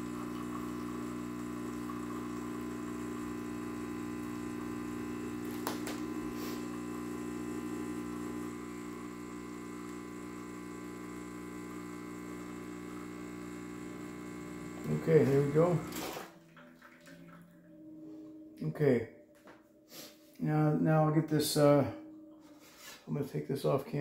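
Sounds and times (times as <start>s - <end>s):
espresso machine pump humming: 0.0s - 16.0s.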